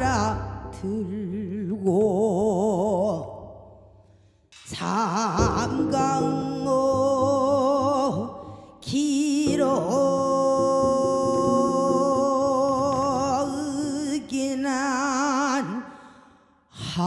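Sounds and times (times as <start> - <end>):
double bass: 0.0 - 3.1, 5.4 - 14.1
woman singing with vibrato: 0.0 - 3.4, 4.7 - 15.8.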